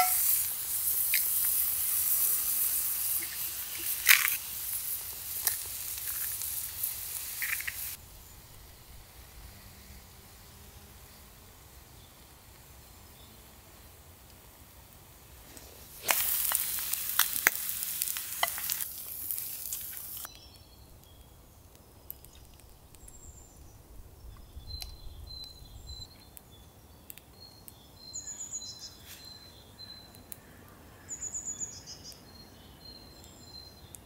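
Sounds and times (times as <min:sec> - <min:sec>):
egg sizzling in a pan: 0:00.0 - 0:08.0, 0:15.8 - 0:20.3
sharp pops: 0:00.0 - 0:08.0, 0:15.5 - 0:20.3.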